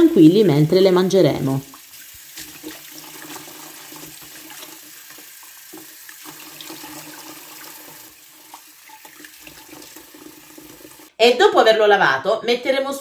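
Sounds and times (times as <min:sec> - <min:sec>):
water splashes and drips: 0:01.6 - 0:11.1
tap running into basin: 0:01.7 - 0:11.1.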